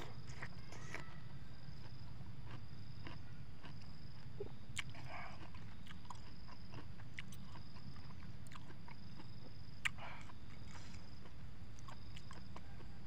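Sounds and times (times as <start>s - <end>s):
chewing juicy fruit: 0.0s - 13.0s
steady low hum: 0.0s - 13.0s.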